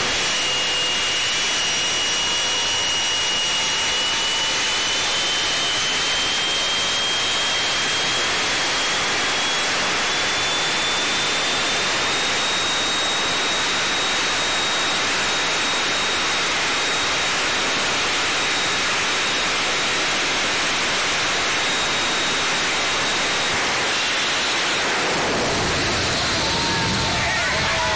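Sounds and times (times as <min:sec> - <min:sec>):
turbine engine rushing and whining: 0:00.0 - 0:27.9.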